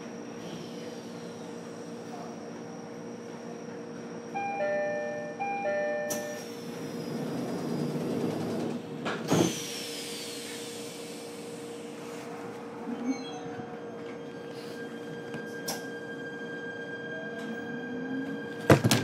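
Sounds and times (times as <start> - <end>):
hiss of air: 9.4 - 12.1.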